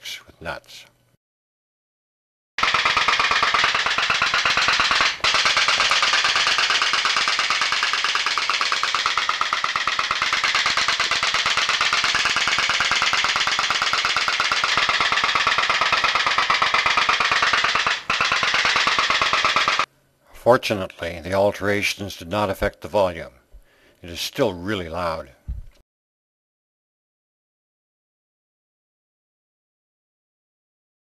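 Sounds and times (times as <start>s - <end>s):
pop-pop steam engine putt-putt: 2.6s - 19.9s.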